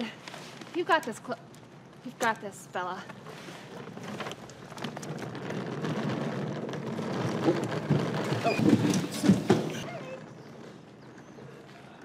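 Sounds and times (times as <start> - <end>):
short squeaks: 8.2 - 10.7.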